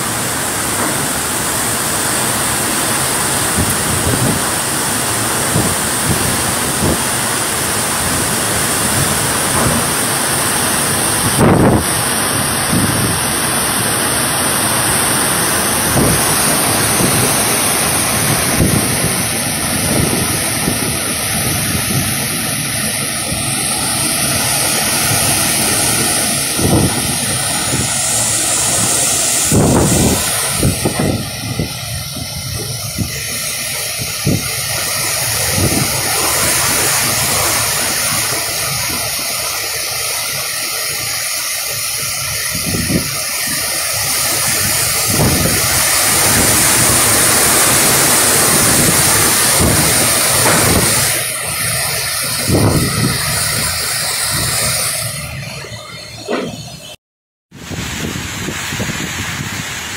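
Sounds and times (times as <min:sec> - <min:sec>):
typhoon wind and heavy rain roaring: 0:00.0 - 0:56.9, 0:57.5 - 0:59.9.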